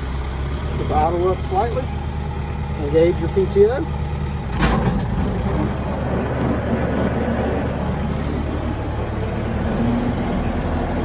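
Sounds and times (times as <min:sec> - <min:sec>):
tractor engine idling: 0:00.0 - 0:11.0
mechanical clunk: 0:04.5 - 0:05.3.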